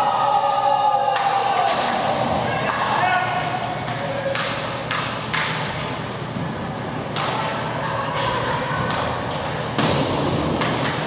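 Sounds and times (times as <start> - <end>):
echoing rink hum: 0.0 - 11.0
hockey sticks clacking on puck: 2.6 - 5.7, 7.1 - 7.5.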